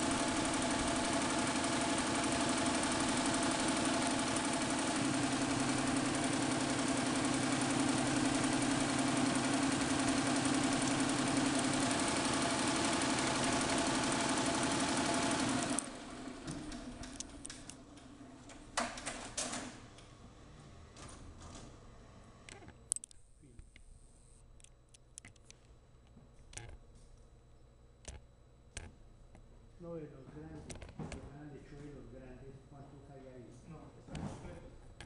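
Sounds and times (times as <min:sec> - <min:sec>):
embroidery machine clatter: 0:00.0 - 0:18.0
sharp clicks: 0:22.5 - 0:23.9, 0:24.6 - 0:25.6, 0:28.0 - 0:28.9.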